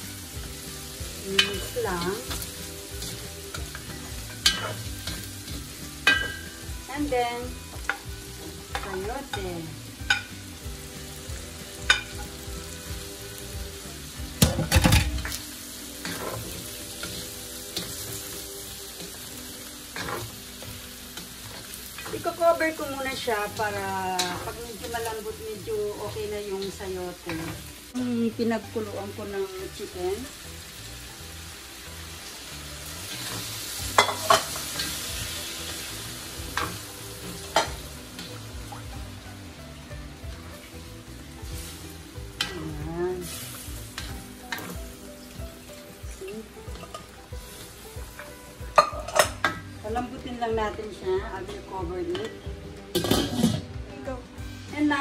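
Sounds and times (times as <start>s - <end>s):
food sizzling in a wok: 0.0s - 55.0s.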